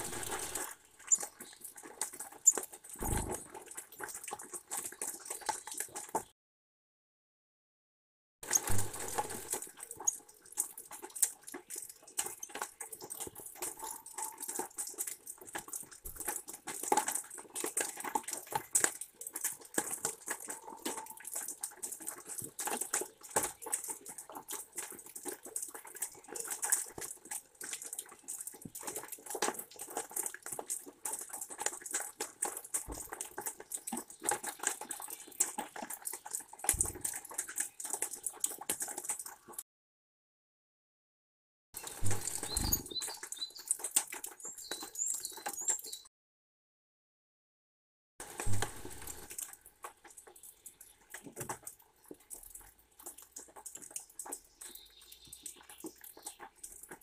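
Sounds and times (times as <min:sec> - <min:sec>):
rain dripping onto wet wood: 0:08.4 - 0:39.6, 0:41.8 - 0:46.0, 0:48.2 - 0:57.0.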